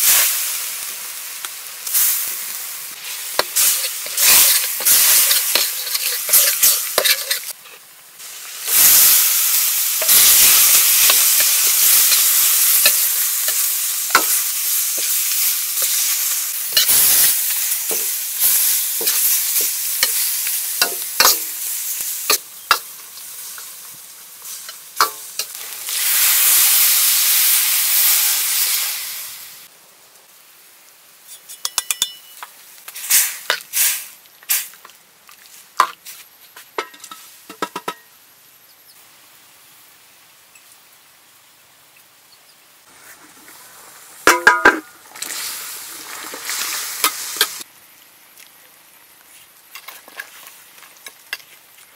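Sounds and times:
curry paste sizzling in a wok: 0.0s - 29.7s, 30.3s - 51.9s
ladle scraping a pan: 3.4s - 7.8s.

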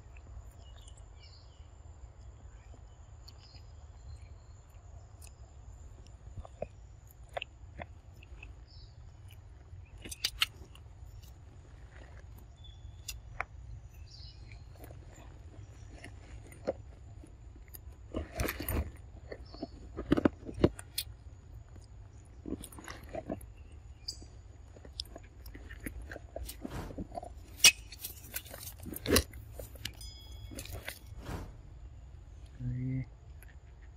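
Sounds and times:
monkey chewing fruit: 3.3s - 32.5s.

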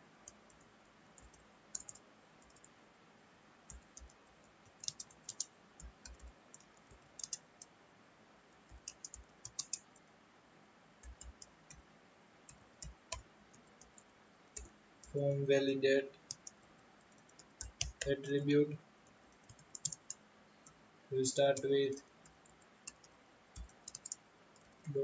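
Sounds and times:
keyboard keystrokes clicking: 1.2s - 2.7s, 4.8s - 7.4s, 8.7s - 9.8s, 11.0s - 11.8s, 16.3s - 18.1s, 19.4s - 20.8s, 21.6s - 25.0s.

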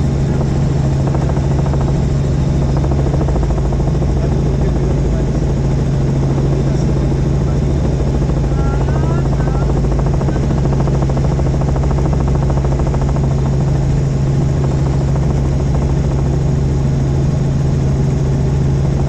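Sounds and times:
helicopter rotor chopping: 0.0s - 19.0s.

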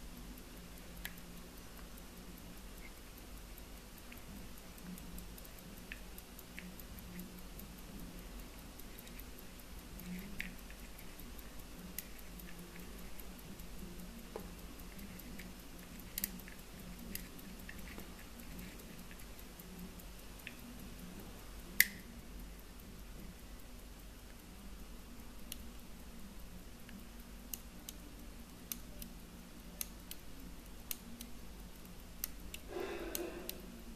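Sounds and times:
low steady hum: 0.0s - 33.9s
pocket watch ticking: 0.0s - 33.9s
watch handling clicks: 2.6s - 20.9s.

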